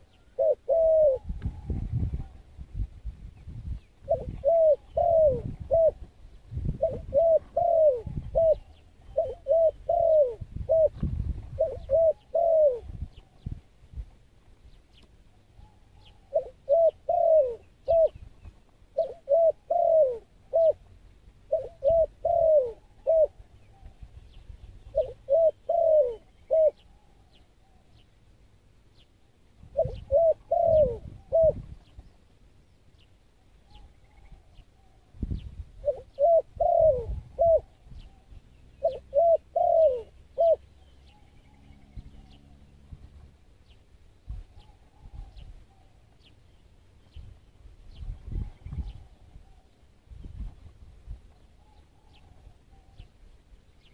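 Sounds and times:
dove cooing: 0:00.0 - 0:02.5, 0:04.0 - 0:13.5, 0:15.5 - 0:18.2, 0:18.9 - 0:24.1, 0:24.8 - 0:27.9, 0:29.7 - 0:31.8, 0:35.8 - 0:42.8.

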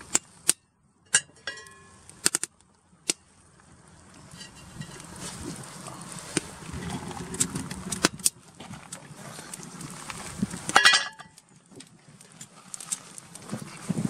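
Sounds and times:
ringing metallic clank: 0:01.1 - 0:02.0, 0:10.8 - 0:11.4
wood fire crackling: 0:01.3 - 0:14.0
pot boiling hard: 0:04.4 - 0:08.3.

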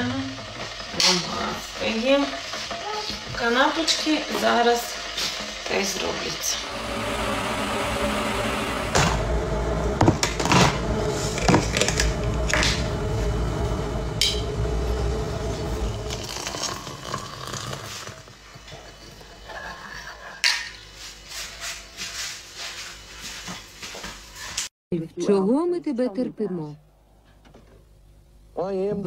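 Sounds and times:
low rumble: 0:06.5 - 0:18.2.

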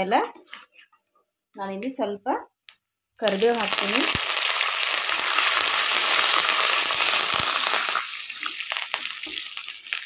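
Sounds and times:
leaves sizzling in hot oil: 0:03.2 - 0:10.0.

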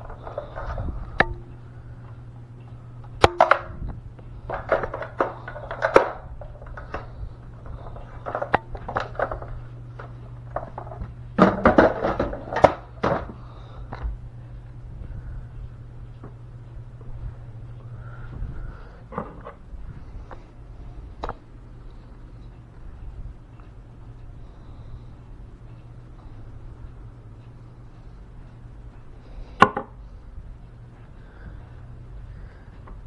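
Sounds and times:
steady low hum: 0:00.0 - 0:33.0
hard objects clicking and rattling: 0:04.4 - 0:14.0.

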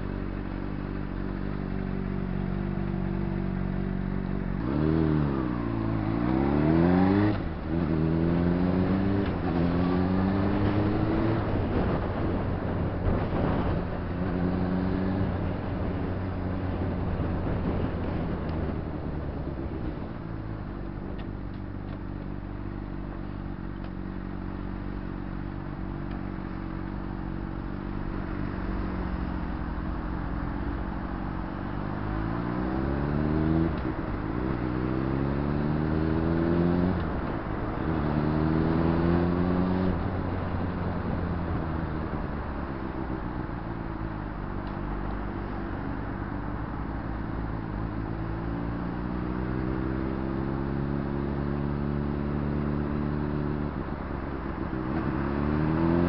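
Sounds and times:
motorcycle engine revving: 0:00.6 - 0:18.8, 0:23.4 - 0:43.8.

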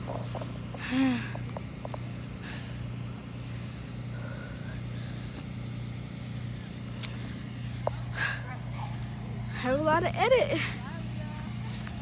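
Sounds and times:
vehicle motor humming: 0:00.0 - 0:12.0.

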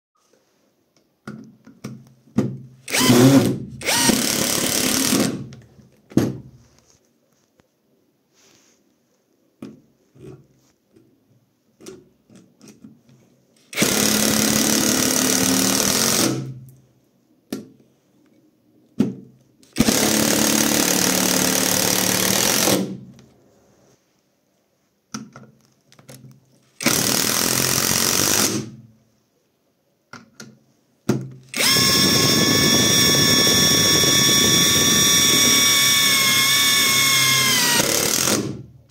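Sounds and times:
impact wrench driving screws: 0:02.9 - 0:05.5, 0:13.7 - 0:16.5, 0:19.8 - 0:22.9, 0:26.8 - 0:28.8, 0:31.4 - 0:38.6.

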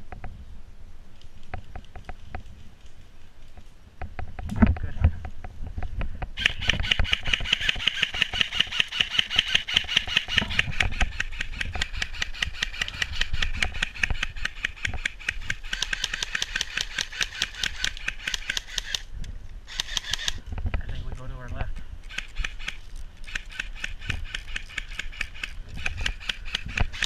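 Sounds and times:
small motor rattling and whining: 0:06.4 - 0:19.1, 0:19.7 - 0:20.6, 0:22.0 - 0:27.0.

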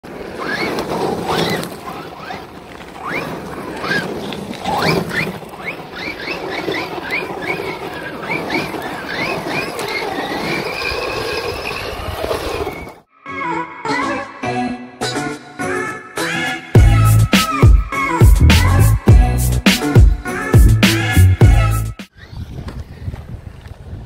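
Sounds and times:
tyres scrabbling on gravel: 0:00.0 - 0:13.0.

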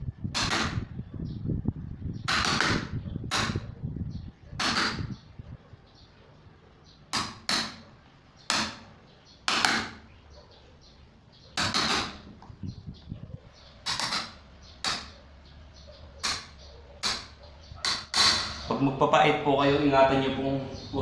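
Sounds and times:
hammer striking wood chisel: 0:04.6 - 0:05.1, 0:07.1 - 0:07.8, 0:08.5 - 0:08.8, 0:09.4 - 0:10.1, 0:11.6 - 0:12.2, 0:13.8 - 0:15.2, 0:16.2 - 0:18.6.

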